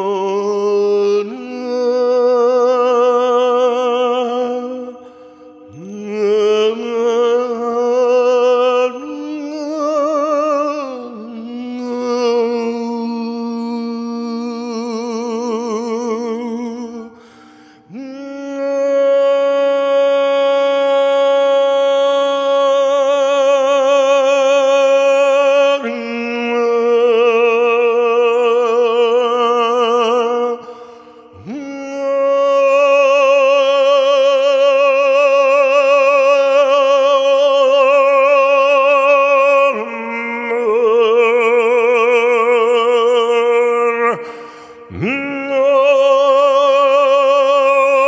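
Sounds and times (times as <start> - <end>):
man chanting long held notes: 17.9 - 48.0.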